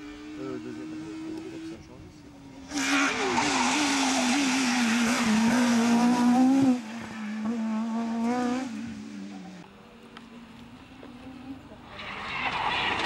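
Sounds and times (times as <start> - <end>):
rally car accelerating away: 0.0 - 9.6, 11.0 - 13.0
rally car engine revving: 0.0 - 9.7.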